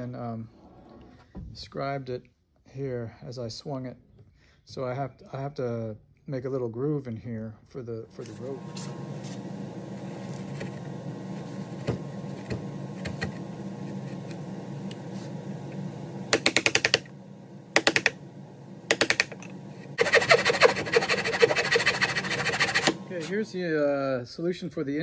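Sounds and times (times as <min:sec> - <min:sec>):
steady low hum: 0:04.7 - 0:24.6.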